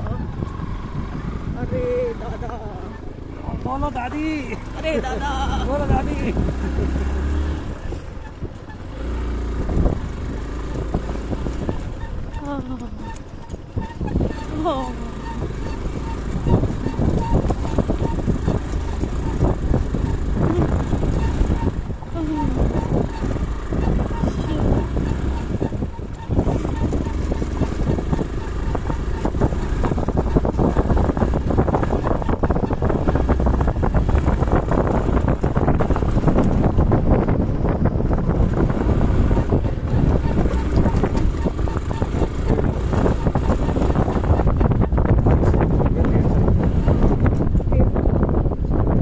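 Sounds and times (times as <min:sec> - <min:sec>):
motorcycle engine running: 0:00.0 - 0:49.0
tyre and road noise: 0:00.0 - 0:49.0
wind buffeting microphone: 0:00.0 - 0:49.0
knocks and rattles from bumps: 0:01.9 - 0:47.9.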